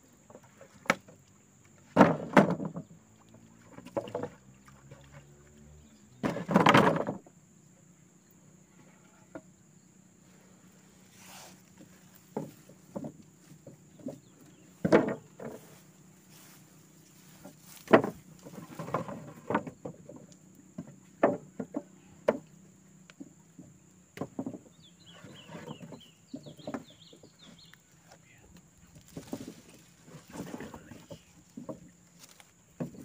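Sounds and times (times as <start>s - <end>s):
knocks and thuds: 1.9s - 2.9s, 6.2s - 7.3s, 12.3s - 15.7s, 17.4s - 20.2s, 23.2s - 24.7s.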